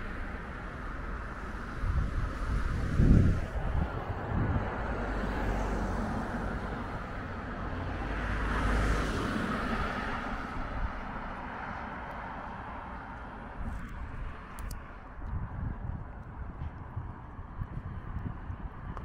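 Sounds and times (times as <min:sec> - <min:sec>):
steady low rumble: 0:00.0 - 0:08.1, 0:12.6 - 0:19.0
vehicle passing: 0:00.0 - 0:14.5.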